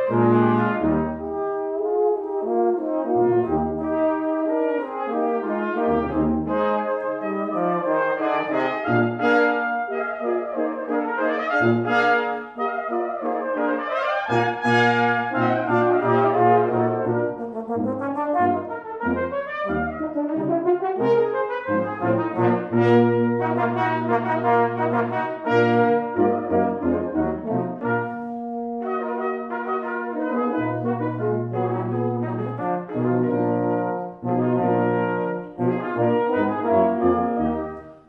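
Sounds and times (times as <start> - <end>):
brass quintet playing: 0.0 - 38.0
tuba low notes: 0.0 - 38.0.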